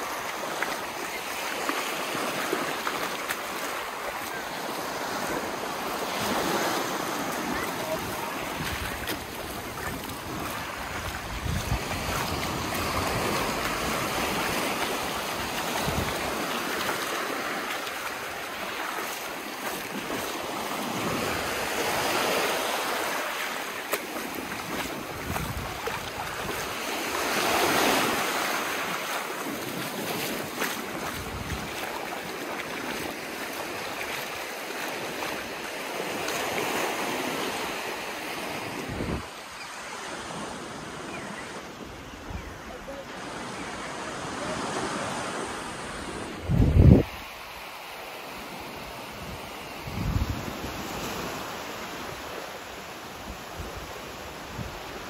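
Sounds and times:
surf washing up a sandy beach: 0.0 - 55.0
wind buffeting microphone: 7.8 - 16.8, 24.6 - 28.3, 30.2 - 31.9, 46.3 - 47.3, 49.2 - 51.3.

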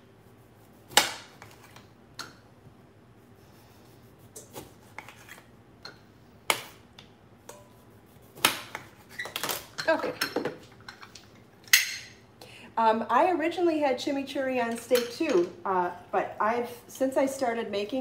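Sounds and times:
knife cutting on board: 4.2 - 5.5, 8.1 - 9.4.

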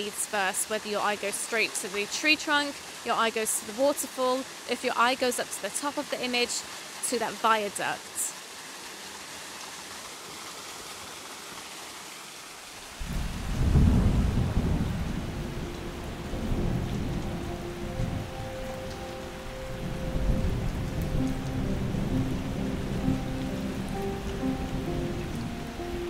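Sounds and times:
falling rain: 0.0 - 26.0
thunder rumble: 13.0 - 26.0.

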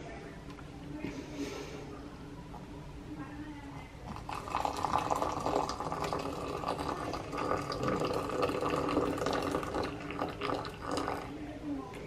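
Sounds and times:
water pouring into a teacup: 4.1 - 11.3.

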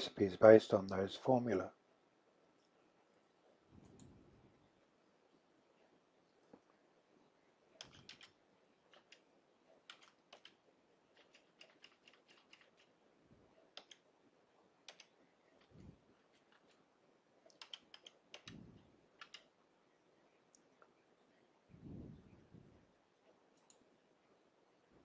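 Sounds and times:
keyboard key clicks: 7.8 - 8.3, 9.9 - 10.6, 13.8 - 14.0, 17.5 - 18.6, 19.2 - 19.5.

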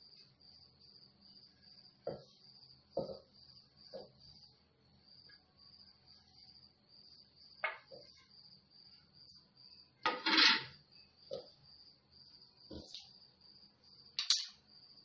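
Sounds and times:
cricket chirping: 0.0 - 15.0
spoon scraping plastic bowl: 10.1 - 10.8.

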